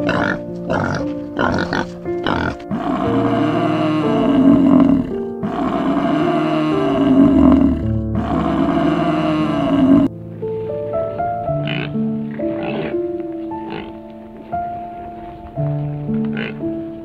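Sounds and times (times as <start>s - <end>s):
cow bellowing: 0.0s - 10.1s, 11.6s - 13.0s, 13.6s - 14.0s
soft piano music: 0.0s - 17.0s.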